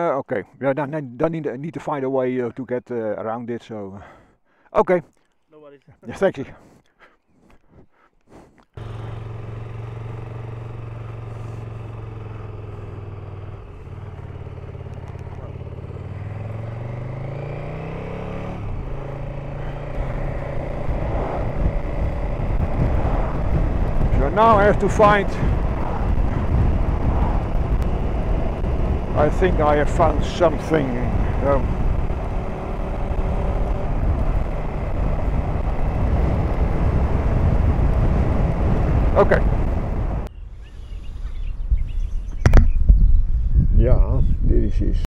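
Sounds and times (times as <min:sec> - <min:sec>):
road and wind noise: 0:08.6 - 0:45.0
faint engine tone: 0:08.8 - 0:22.6
motorcycle engine accelerating: 0:08.8 - 0:40.3.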